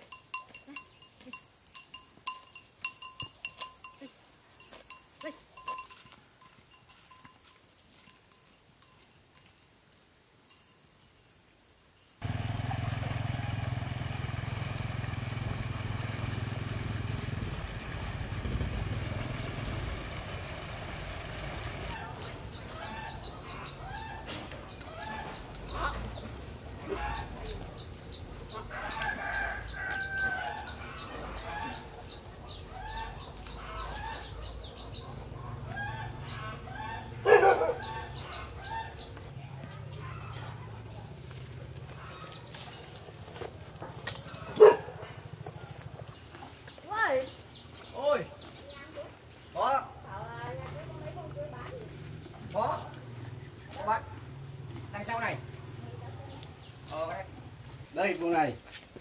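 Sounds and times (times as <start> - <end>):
low rumble: 16.6 - 21.9
chickens clucking: 21.9 - 29.4
rooster crowing: 28.4 - 34.3, 35.6 - 39.1.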